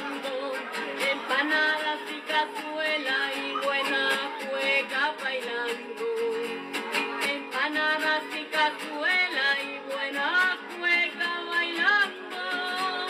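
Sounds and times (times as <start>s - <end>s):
folk song with acoustic guitar: 0.0s - 13.0s.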